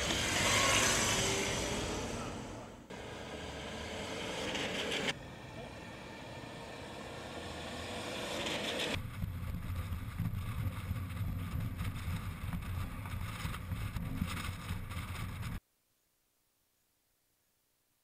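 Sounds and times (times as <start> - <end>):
hiss of tyres and motor: 0.0 - 9.0
electric motorcycle passing by: 0.0 - 11.9
wind rumbling on microphone: 9.0 - 15.6.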